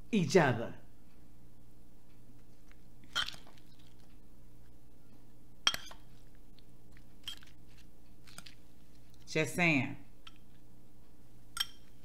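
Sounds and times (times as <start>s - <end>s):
low electrical hum: 0.0s - 12.0s
fork and knife clinking in bowl: 3.1s - 3.5s, 5.7s - 6.1s, 7.2s - 7.5s, 11.5s - 12.0s.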